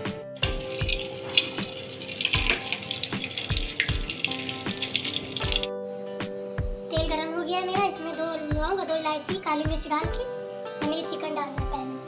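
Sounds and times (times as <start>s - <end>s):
background music: 0.0s - 12.0s
hot oil sizzling: 0.4s - 5.7s.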